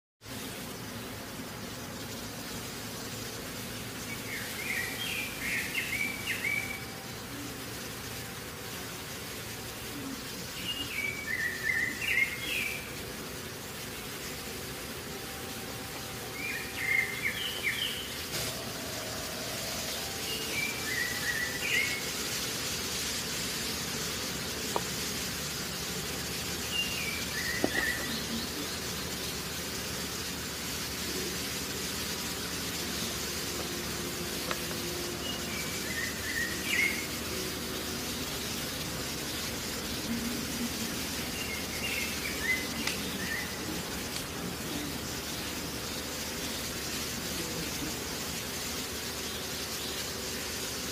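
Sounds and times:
steady background hiss: 0.2 - 50.9
bird chirping: 25.7 - 29.5.

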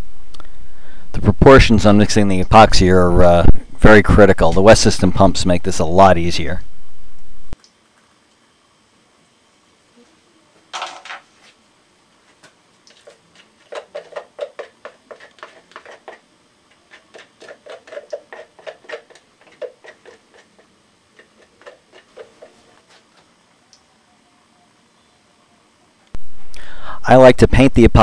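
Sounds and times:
stick scraping plastic cup: 12.4 - 23.3.

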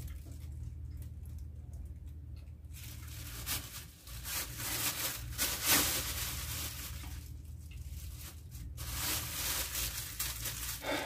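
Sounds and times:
plastic bag crinkling: 2.6 - 11.0.

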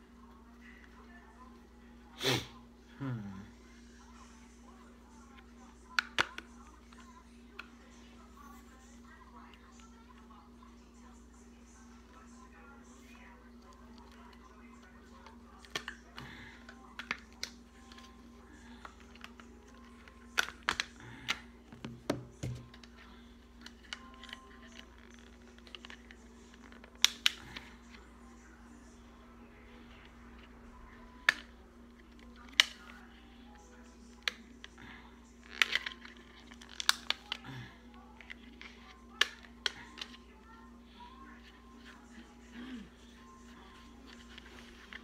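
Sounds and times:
plastic clicks and snaps: 5.9 - 7.7, 18.8 - 22.9, 23.6 - 27.6, 35.4 - 37.4.

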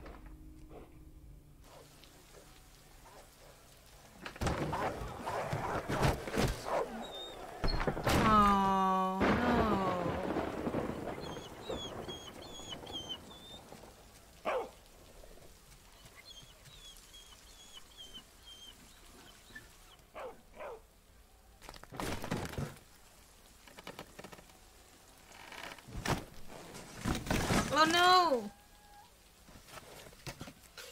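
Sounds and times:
animal whimpering cries: 4.8 - 13.8, 16.0 - 19.9
faint high chirping: 10.8 - 13.8.

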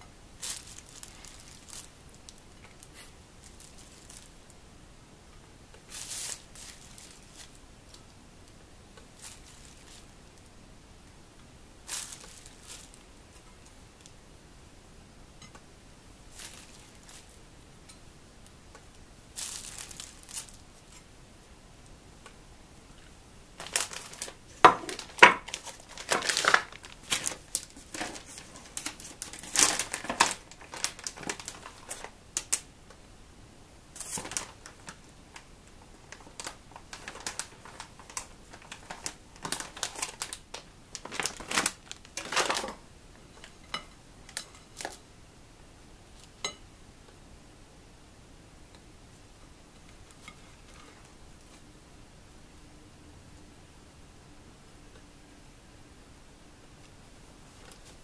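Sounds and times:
plastic wrapping crinkling: 0.4 - 4.4, 5.9 - 8.1, 9.0 - 10.2, 11.8 - 14.1, 16.3 - 17.4, 19.3 - 21.0, 23.6 - 32.7, 33.9 - 42.8, 43.4 - 45.0, 57.5 - 58.0.

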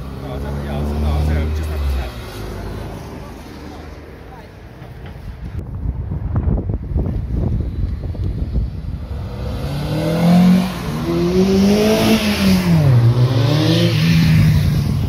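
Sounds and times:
car engine accelerating past: 9.2 - 14.8.

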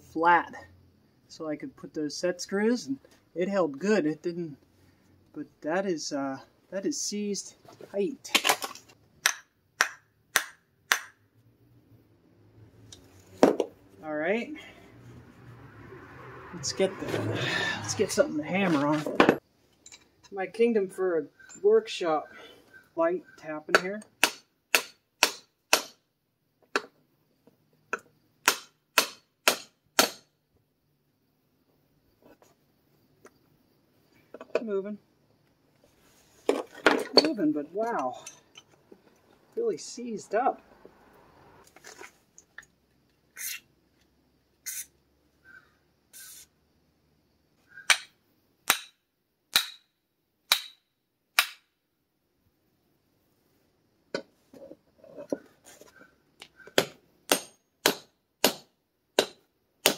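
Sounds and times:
aerosol spray hissing: 44.7 - 44.9, 46.2 - 46.5.

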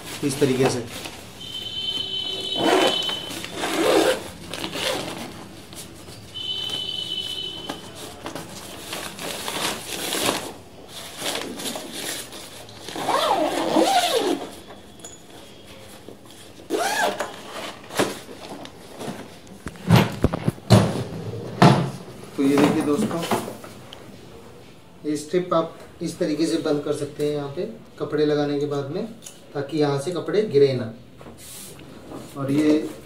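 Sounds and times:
fabric lining rustling: 2.6 - 6.8, 8.2 - 14.5.

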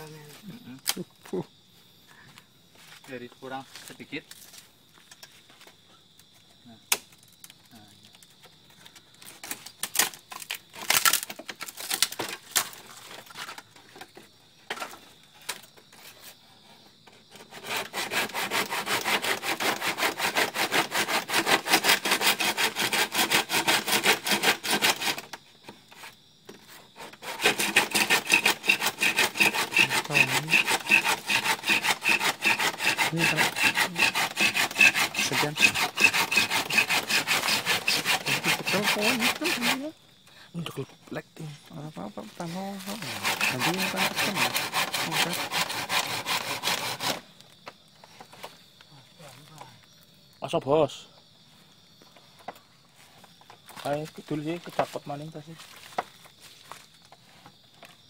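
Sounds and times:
hand saw cutting bamboo: 9.4 - 13.5, 17.1 - 26.1, 26.7 - 39.9, 42.4 - 47.2.

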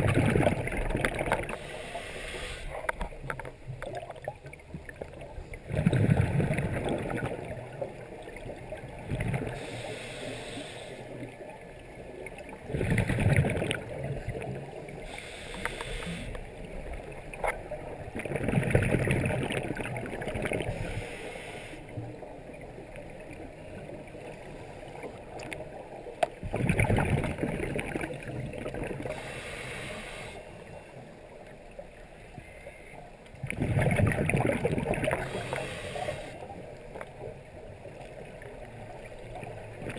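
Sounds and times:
bubbling rush of exhaled air: 0.0 - 2.9, 5.6 - 7.7, 12.6 - 14.4, 18.2 - 21.1, 26.4 - 30.4, 33.4 - 36.4
regulator hiss of inhaled air: 1.6 - 2.8, 9.6 - 11.0, 15.0 - 16.4, 20.8 - 21.8, 29.1 - 30.5, 35.2 - 36.4.

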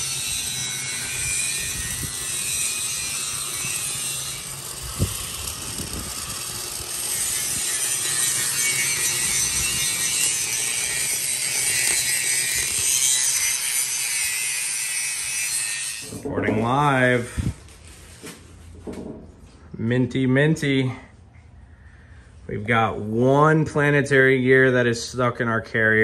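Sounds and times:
grinder scraping steel with whine: 0.0 - 18.0.

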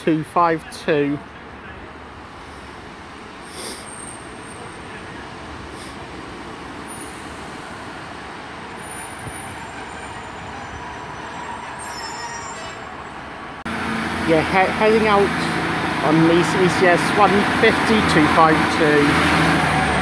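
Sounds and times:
train engine and wheel rumble: 0.0 - 20.0
high squeals: 8.8 - 13.2.

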